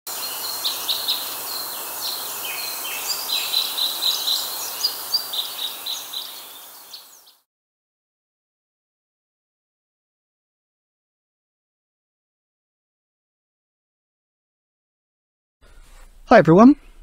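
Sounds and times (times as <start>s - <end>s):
birds chirping: 0.1s - 7.4s
outdoor ambience hiss: 0.1s - 7.4s.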